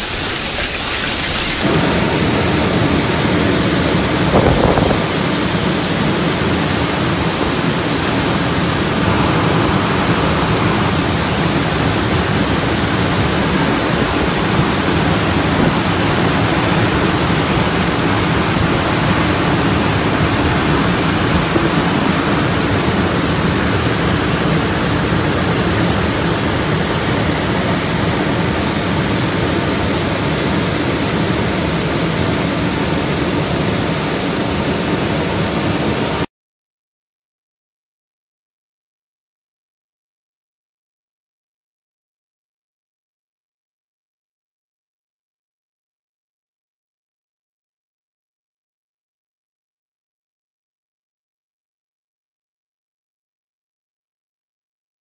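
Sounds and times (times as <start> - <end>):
heavy rain downpour: 0.0 - 4.2, 5.3 - 29.8.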